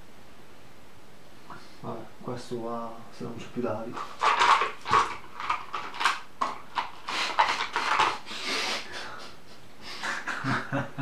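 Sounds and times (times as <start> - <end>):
man's stifled laughter: 8.3 - 11.0.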